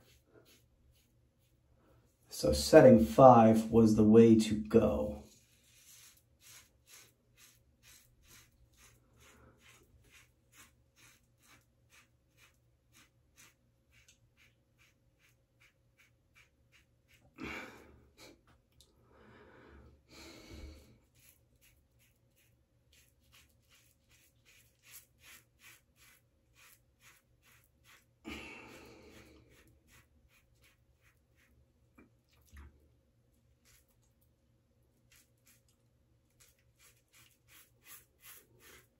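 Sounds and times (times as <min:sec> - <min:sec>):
razor scraping stubble: 0:04.9 - 0:17.4, 0:21.0 - 0:28.2, 0:29.0 - 0:31.6, 0:35.0 - 0:38.9.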